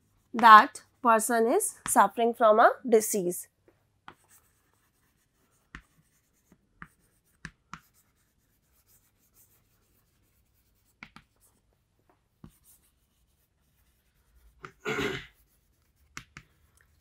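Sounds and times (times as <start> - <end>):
chalk tapping on board: 4.0 - 11.5, 12.4 - 16.7
chalk scratching on chalkboard: 4.1 - 17.0.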